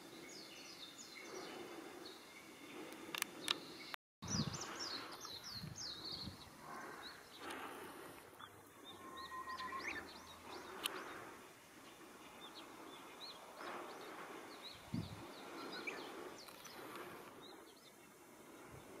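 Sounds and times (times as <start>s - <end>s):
small birds chirping: 0.0s - 19.0s
whistled bird note: 8.4s - 11.2s.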